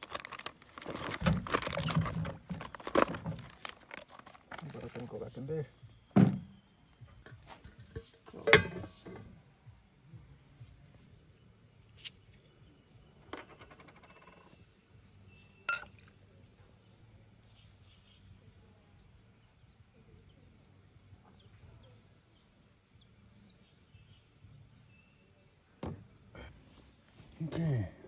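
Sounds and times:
outdoor background noise: 0.0s - 28.0s
cookware clinking and knocking: 8.3s - 9.2s, 15.7s - 16.0s.

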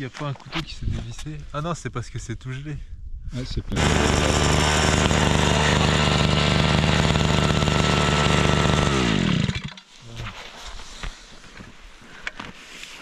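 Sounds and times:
ice auger engine drilling: 3.8s - 9.8s.

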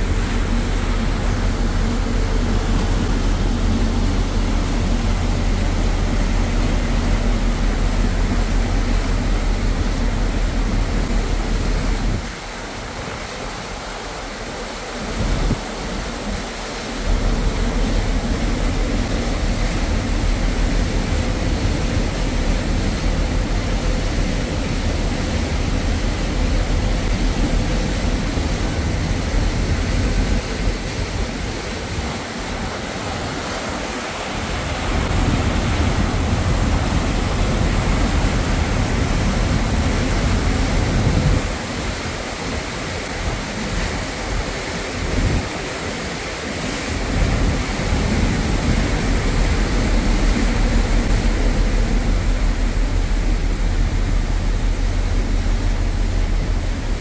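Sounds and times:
rushing water of boat wake: 0.0s - 57.0s
ship engines humming: 0.0s - 57.0s
wind buffeting microphone: 15.0s - 57.0s.

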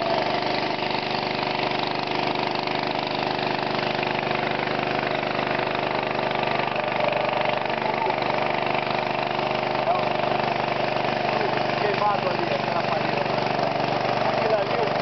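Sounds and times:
small boat motor running: 0.0s - 15.0s.

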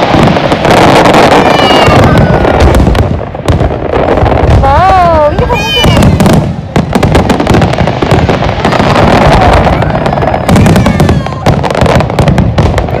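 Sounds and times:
fireworks bangs and crackling: 0.0s - 13.0s.

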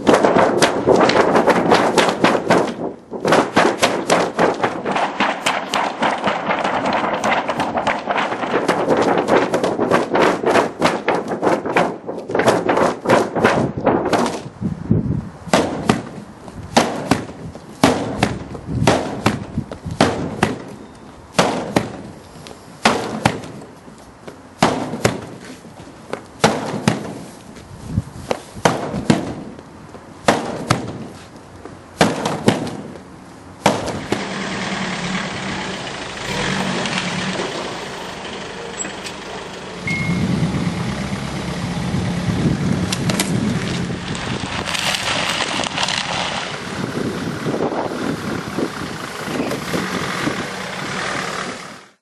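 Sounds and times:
van engine running: 33.9s - 52.0s.

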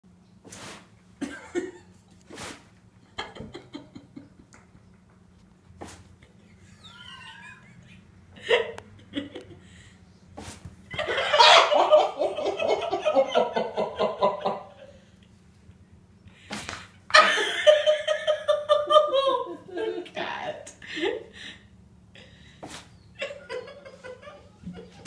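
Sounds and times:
person laughing hard: 3.2s - 4.5s, 6.3s - 9.7s, 11.0s - 15.0s, 17.1s - 20.2s, 23.2s - 25.0s.

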